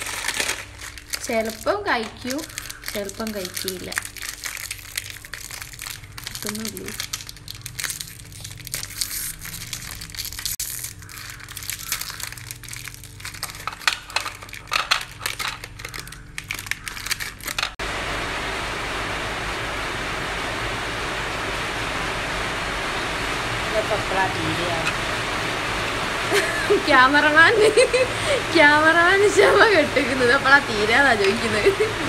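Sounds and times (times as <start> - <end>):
plastic wrapper crinkling: 0.0 - 17.8
steady hiss: 17.8 - 32.0.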